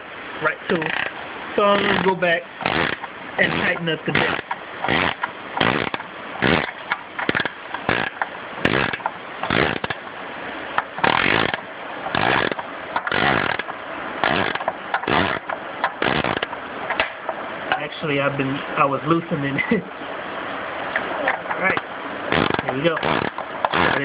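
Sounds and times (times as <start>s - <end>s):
ratchet wrench clicking: 1.8s - 10.0s, 11.0s - 17.0s.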